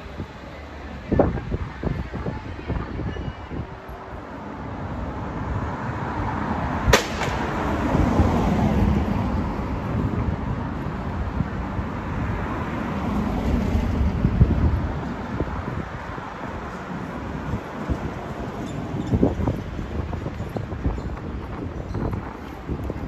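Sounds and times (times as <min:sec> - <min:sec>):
vehicle passing: 0:04.4 - 0:20.1.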